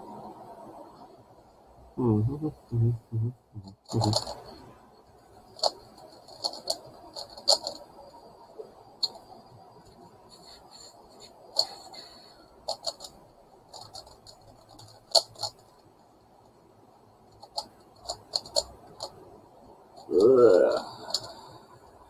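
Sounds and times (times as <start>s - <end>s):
puzzle cube clicking and clacking: 3.6s - 4.6s, 5.5s - 7.9s, 11.2s - 15.7s, 17.3s - 19.3s, 20.0s - 21.4s.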